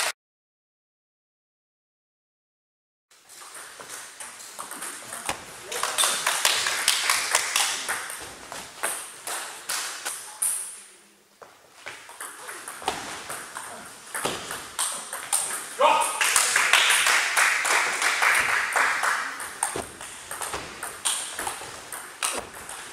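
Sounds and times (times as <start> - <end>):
distant table tennis rallies: 3.2 - 22.9
table tennis ball pocks: 3.4 - 10.7, 11.9 - 15.8, 17.8 - 22.9.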